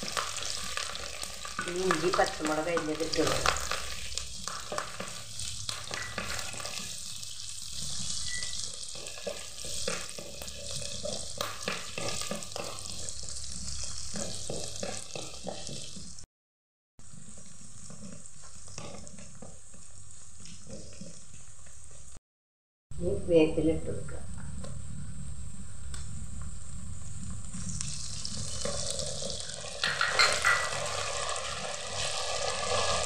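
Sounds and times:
food sizzling in hot oil: 0.0s - 16.3s, 17.0s - 22.2s, 24.4s - 33.0s
wooden spatula scraping pot: 8.9s - 13.1s.

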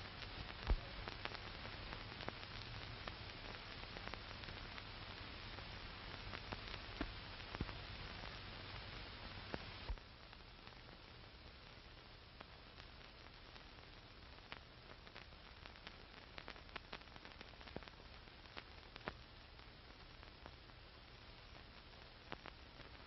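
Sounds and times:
film soundtrack hiss: 0.0s - 23.0s
pops and crackles: 0.0s - 23.0s.

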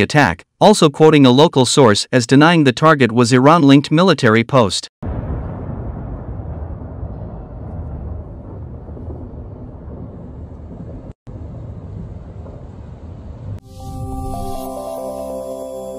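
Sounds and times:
steady low rumble: 5.0s - 14.2s.

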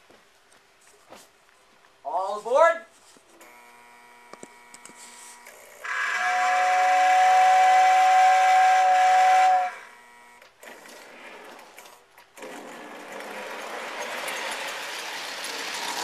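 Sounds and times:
model train motor and wheels: 3.3s - 16.0s
model train whistle blast: 5.8s - 10.3s.

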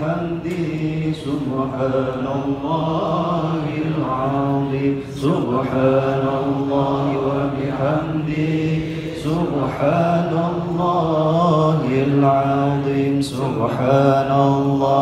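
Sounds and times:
male congregation chanting: 0.0s - 15.0s.

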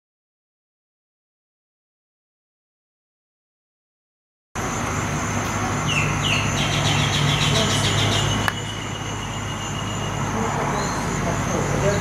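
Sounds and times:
high-pitched drone: 4.6s - 12.0s
low engine hum: 4.6s - 12.0s
birds chirping and whistling: 5.8s - 12.0s.

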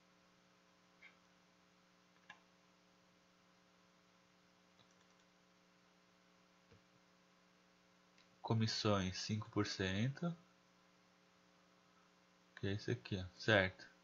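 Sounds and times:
low electrical hum: 0.0s - 14.0s
faint clicks: 2.1s - 2.5s, 4.7s - 5.3s.

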